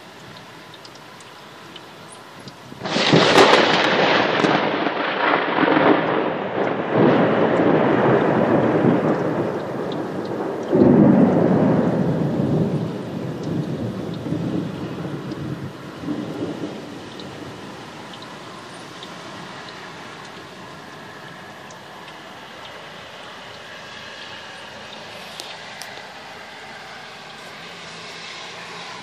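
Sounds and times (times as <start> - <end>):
steady rain falling: 0.0 - 29.0
thunder rumbling: 2.7 - 29.0.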